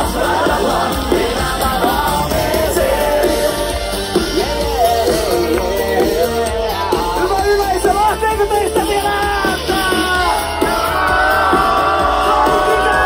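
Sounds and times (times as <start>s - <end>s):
person singing: 0.0s - 7.4s
heavy bass: 0.0s - 13.0s
live rock band playing: 0.0s - 13.0s.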